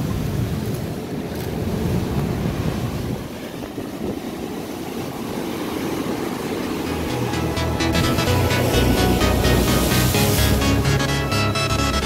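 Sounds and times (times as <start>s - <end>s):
wind rumbling on microphone: 0.0s - 6.8s.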